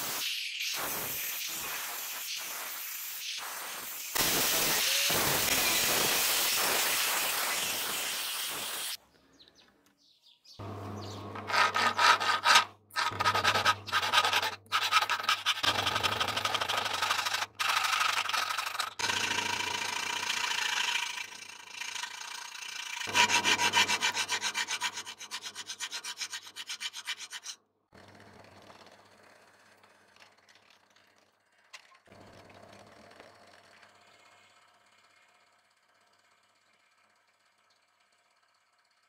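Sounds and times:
faint drill press boring steel: 0:10.6 - 0:27.4, 0:33.2 - 0:39.0
file rasping on steel blade: 0:11.4 - 0:27.6.

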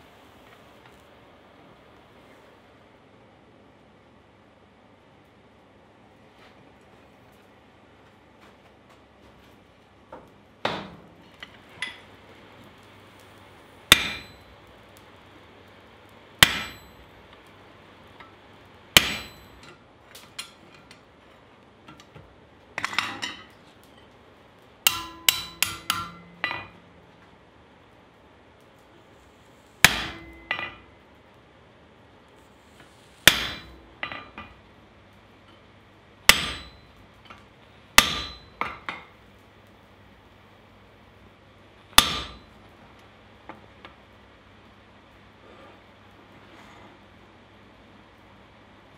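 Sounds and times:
hammer ringing on steel: 0:13.9 - 0:14.6, 0:16.4 - 0:17.1, 0:19.0 - 0:19.7, 0:24.9 - 0:26.8, 0:29.8 - 0:30.8, 0:33.3 - 0:34.5, 0:36.3 - 0:37.0, 0:38.0 - 0:38.8
lighter hammer strikes: 0:13.9 - 0:14.7, 0:16.4 - 0:17.1, 0:24.9 - 0:26.8.

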